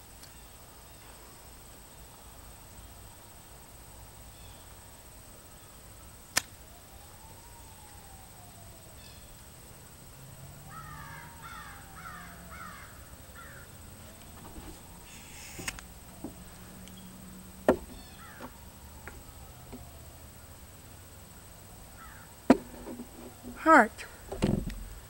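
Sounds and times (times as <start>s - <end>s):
sharp crack: 6.3s - 6.6s, 15.1s - 17.0s
faint siren rising and falling: 6.6s - 22.4s
crow cawing: 10.7s - 13.8s, 18.0s - 18.6s, 22.0s - 22.3s.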